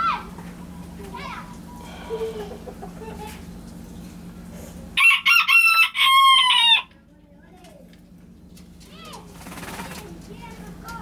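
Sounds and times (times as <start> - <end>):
faint steady hum: 0.0 - 11.0
rooster crowing: 5.0 - 6.9.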